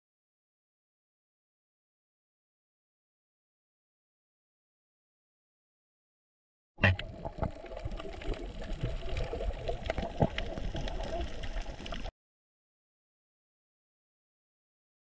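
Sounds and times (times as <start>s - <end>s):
low underwater rumble: 6.8s - 12.1s
sharp underwater clicks and crackles: 6.8s - 12.1s.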